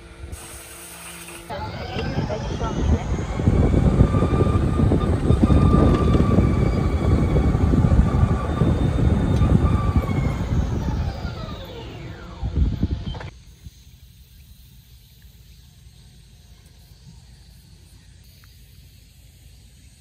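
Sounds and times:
electric motor whine: 0.0 - 13.6
low rumble: 1.5 - 13.3.

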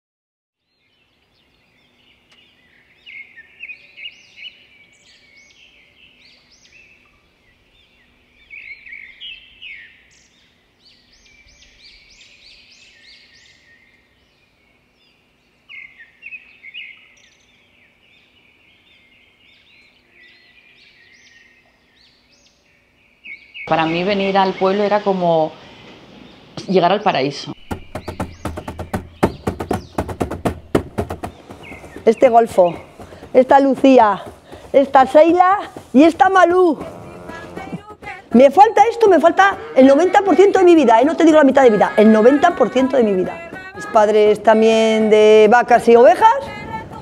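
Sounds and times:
robin singing: 0.6 - 47.0.

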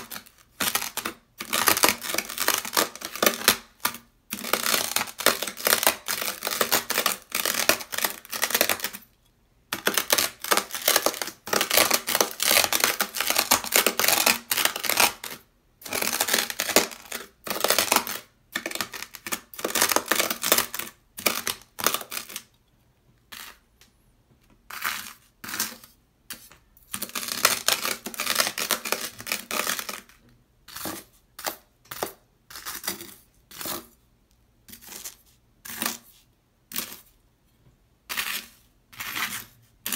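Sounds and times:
knife scraping sand on sandpaper: 38.1 - 39.9.

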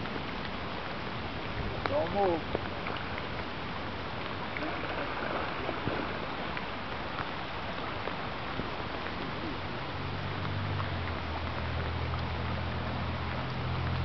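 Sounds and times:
river current rushing over riffle: 1.2 - 11.6.

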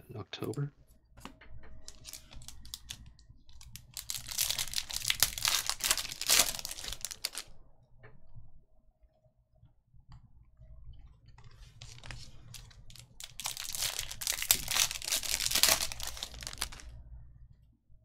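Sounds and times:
cards rustling and clicking: 1.2 - 7.5, 11.4 - 16.9
foil wrapper tearing and crinkling: 1.9 - 7.5, 11.8 - 16.9.

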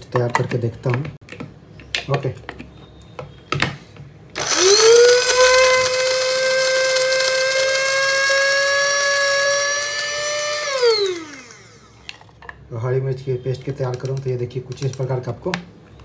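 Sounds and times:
spice grinder motor whine: 4.4 - 12.1.

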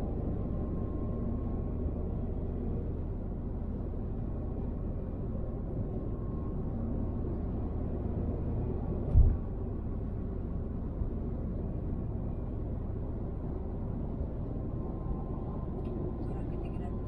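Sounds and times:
car driving on motorway: 0.0 - 17.0
low thump: 9.1 - 9.4.

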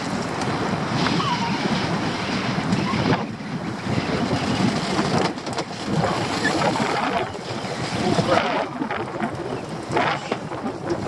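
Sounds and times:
waves slapping against boat: 0.0 - 11.0
wind buffeting microphone: 0.0 - 11.0
crab pot hauled aboard: 3.9 - 11.0.

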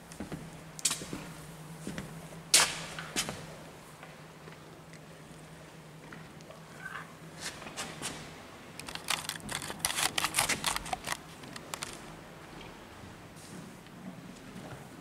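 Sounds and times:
rustling clicks: 8.8 - 12.0.

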